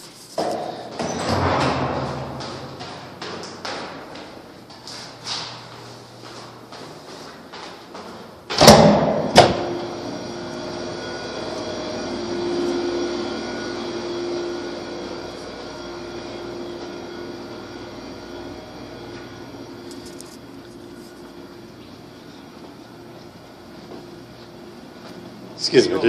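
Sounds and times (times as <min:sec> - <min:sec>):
steady hum with low tone: 0:00.4 - 0:26.0
heavy door banging open: 0:00.9 - 0:04.1, 0:08.5 - 0:09.7.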